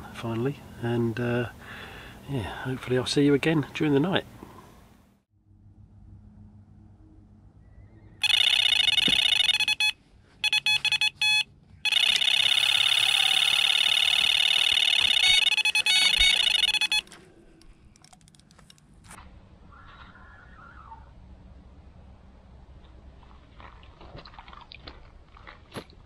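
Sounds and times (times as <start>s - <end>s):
electronic bite alarm bleeping: 8.2s - 17.2s.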